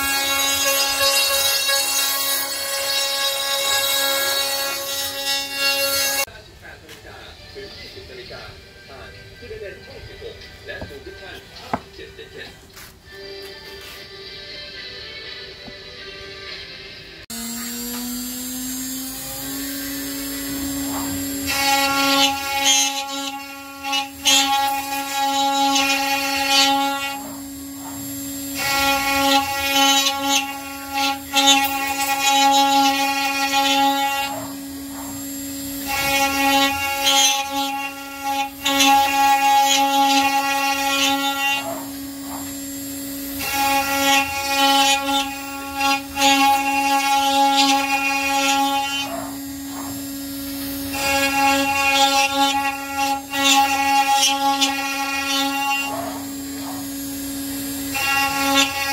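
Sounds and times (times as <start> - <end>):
router bit milling wood: 0.0 - 6.3, 17.3 - 58.9
router spindle whine: 17.3 - 58.9.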